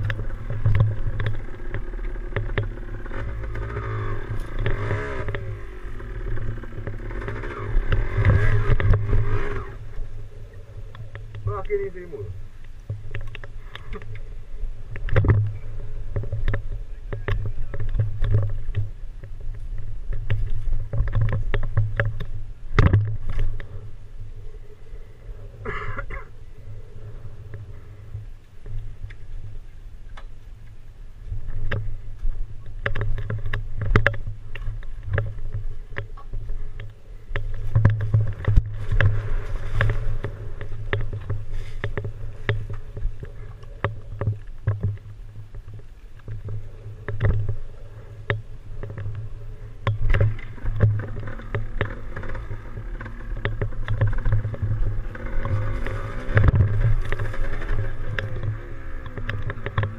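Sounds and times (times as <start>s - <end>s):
knocks from rough ground: 0.0s - 10.2s, 14.9s - 23.8s, 31.3s - 59.9s
dirt bike engine: 0.0s - 59.9s.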